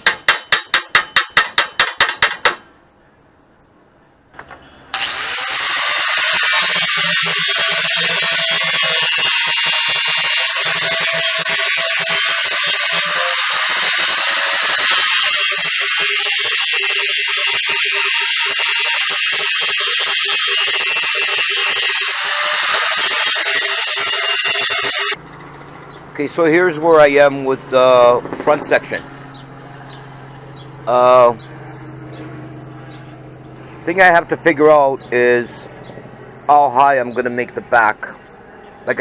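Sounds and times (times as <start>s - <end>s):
grinder disc hissing on metal: 5.0s - 25.2s
grinder motor whine: 5.0s - 25.2s.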